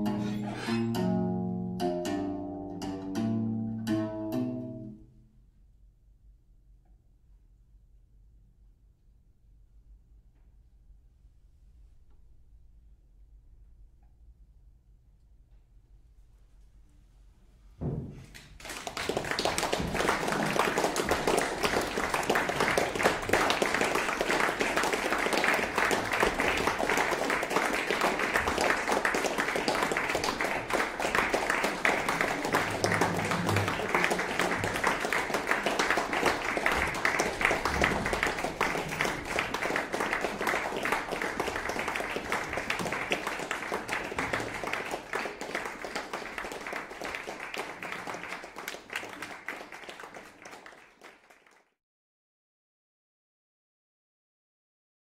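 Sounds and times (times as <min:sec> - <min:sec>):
audience applauding: 0:18.3 - 0:51.7.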